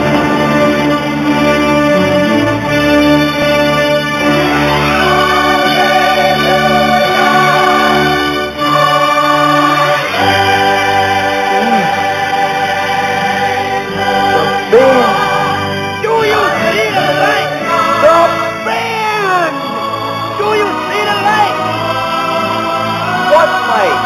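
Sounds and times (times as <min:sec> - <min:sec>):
organ chords: 0:00.0 - 0:24.0
singing: 0:08.9 - 0:15.6.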